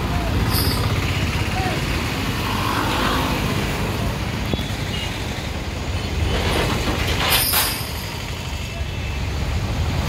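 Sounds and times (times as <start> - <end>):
heavy vehicles idling rumble: 0.0 - 2.4
street traffic: 0.0 - 10.0.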